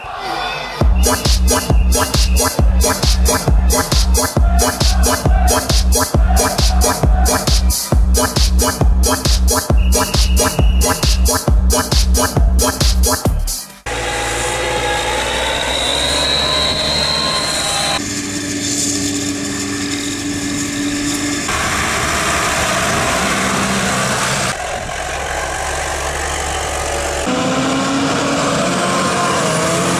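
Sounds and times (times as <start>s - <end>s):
tractor engines running: 13.9s - 29.9s.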